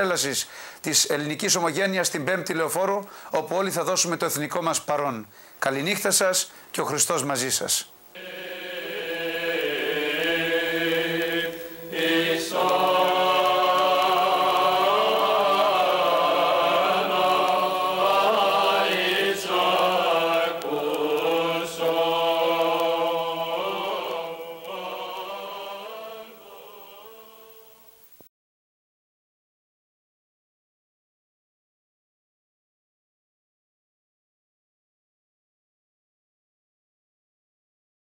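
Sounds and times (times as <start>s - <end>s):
choir chanting: 8.2s - 27.9s.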